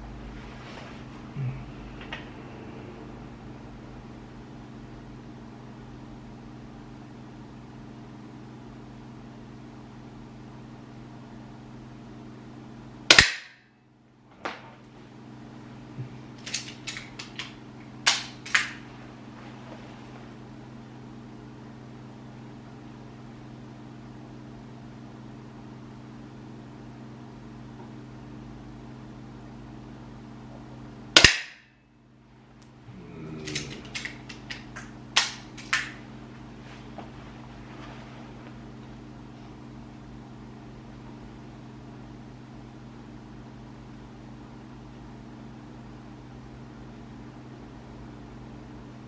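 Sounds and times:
air pistol shot: 13.1s - 13.6s, 31.2s - 31.7s
pistol handling clicks: 16.4s - 17.5s
pistol mechanism snaps: 16.4s - 17.5s, 18.1s - 18.8s, 31.2s - 31.7s.

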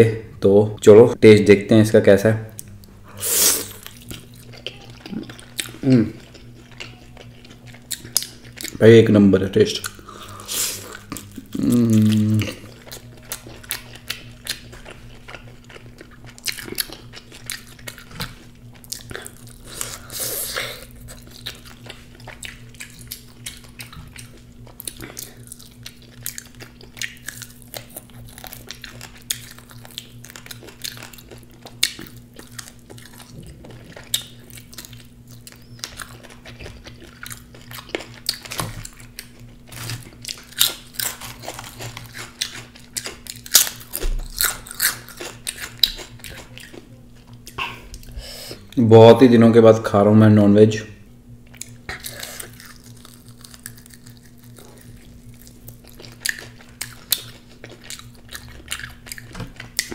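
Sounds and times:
crunchy chewing of fried chicken: 3.6s - 48.8s, 51.3s - 59.9s.

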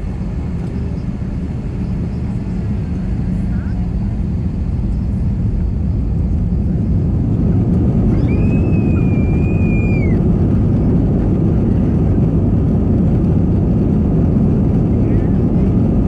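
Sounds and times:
jet engines rumbling: 0.0s - 16.0s
child screaming: 8.1s - 10.2s.

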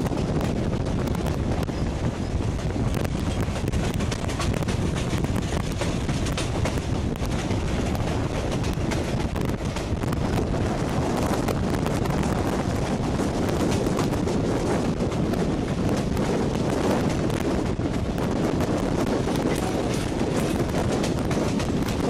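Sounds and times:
train rumbling on track: 0.0s - 22.0s
wind rushing over microphone: 0.0s - 22.0s.

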